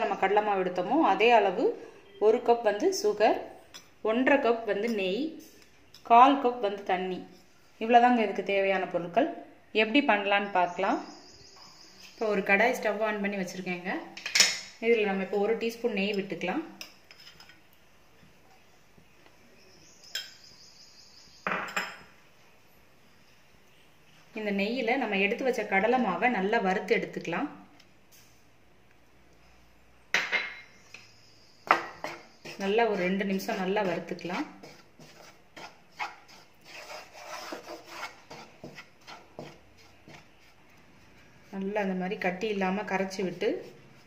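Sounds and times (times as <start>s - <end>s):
wooden spatula scraping flour: 32.0s - 41.9s, 42.8s - 44.0s.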